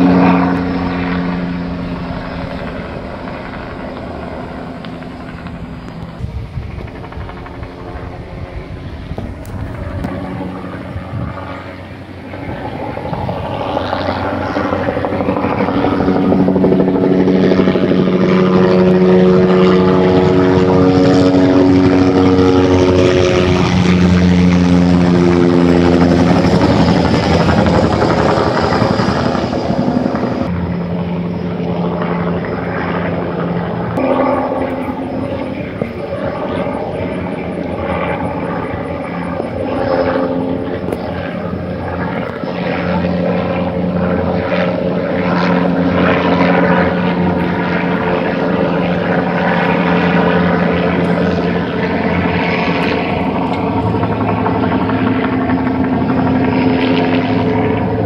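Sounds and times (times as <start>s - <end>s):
helicopter rotor drone: 0.0s - 58.0s.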